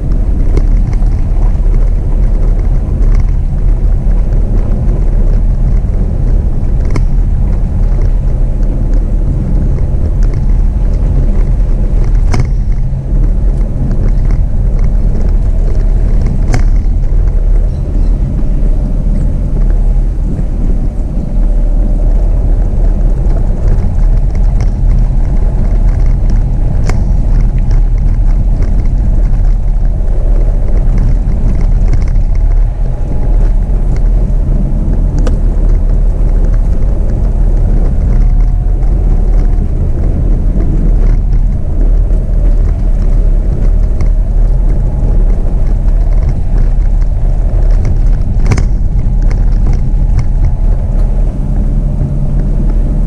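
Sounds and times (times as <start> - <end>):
engine and tyres rumbling: 0.0 - 53.0
sharp clicks and knocks: 0.0 - 53.0.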